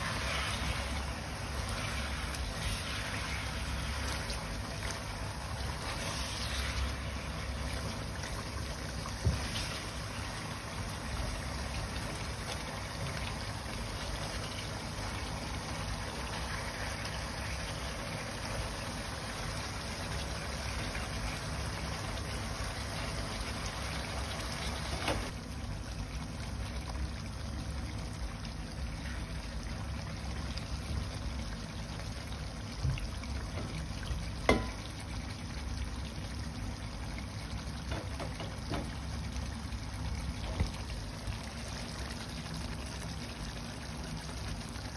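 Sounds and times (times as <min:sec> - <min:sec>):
food simmering with bubbling hiss: 0:00.0 - 0:44.9.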